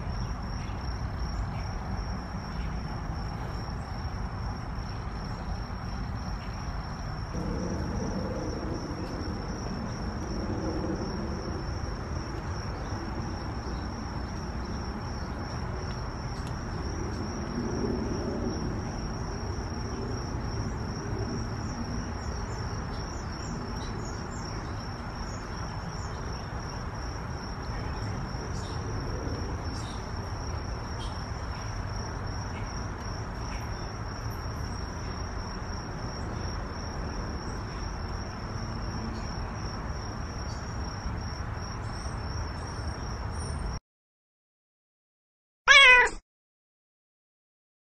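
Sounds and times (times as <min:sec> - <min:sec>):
low outdoor rumble: 0:00.0 - 0:22.6.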